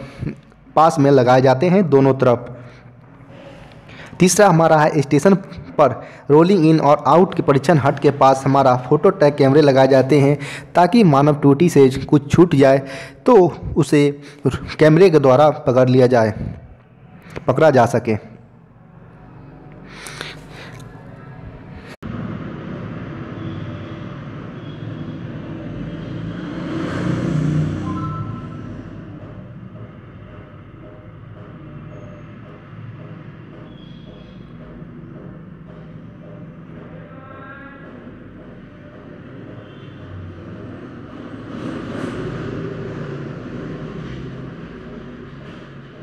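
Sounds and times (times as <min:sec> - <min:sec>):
passing vehicle rumble: 0:20.6 - 0:46.0.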